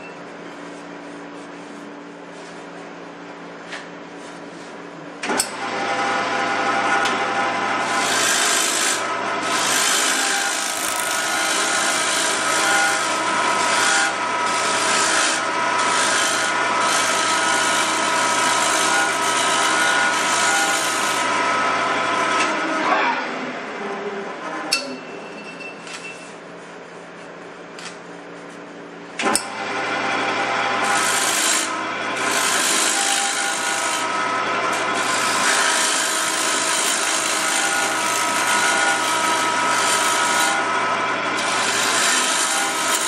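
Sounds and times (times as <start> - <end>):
lathe motor humming: 5.5 - 22.6, 29.4 - 43.0
wood shaving on a lathe: 5.5 - 22.6, 29.5 - 43.0.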